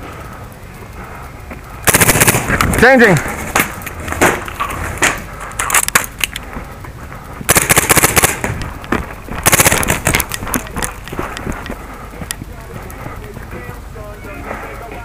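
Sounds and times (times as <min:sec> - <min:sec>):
paintball marker firing bursts: 0:01.8 - 0:02.9, 0:07.5 - 0:08.6, 0:09.4 - 0:10.6
paintball single shots: 0:07.5 - 0:08.6, 0:09.4 - 0:10.3.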